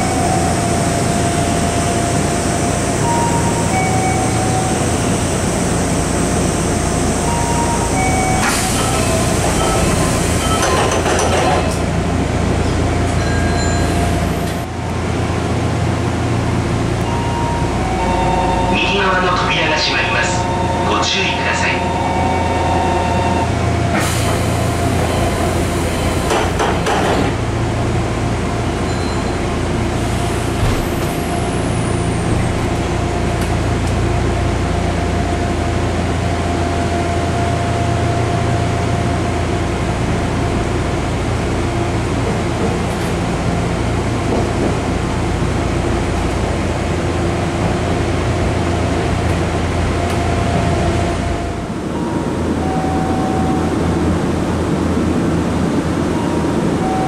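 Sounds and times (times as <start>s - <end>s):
train running hum: 0.0s - 57.0s
train doors sliding shut: 7.3s - 11.9s, 23.8s - 27.5s, 29.2s - 34.0s.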